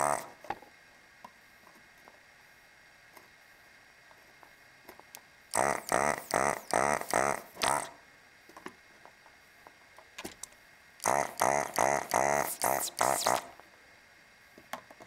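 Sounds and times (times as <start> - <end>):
vacuum pump pulsing: 0.0 - 0.5, 5.5 - 8.0, 11.0 - 13.6.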